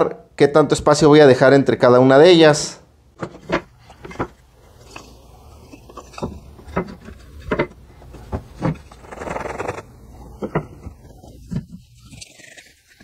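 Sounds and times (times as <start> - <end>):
rustling scrape: 3.2 - 13.0
wood rubbing: 3.2 - 13.0
wood knocking on wood: 6.2 - 8.8.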